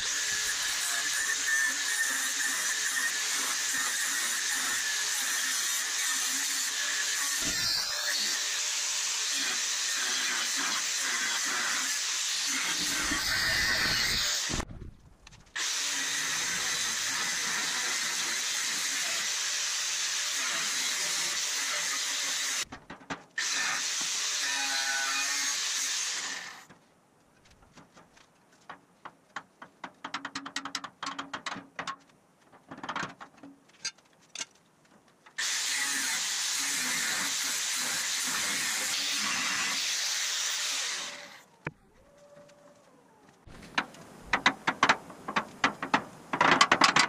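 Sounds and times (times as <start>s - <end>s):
angle grinder cutting steel: 0.0s - 14.6s, 15.6s - 22.6s, 23.4s - 26.7s, 35.4s - 41.4s.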